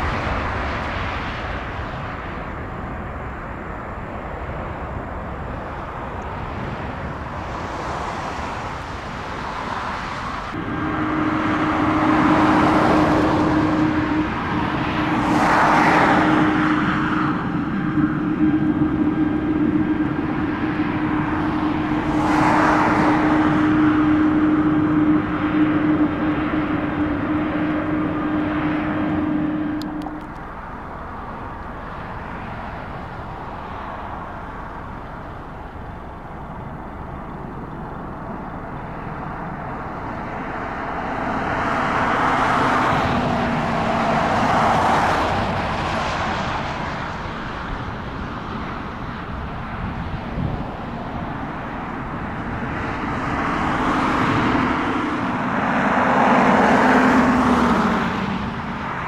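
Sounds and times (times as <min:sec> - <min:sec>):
jet engines humming: 0:00.0 - 0:59.0.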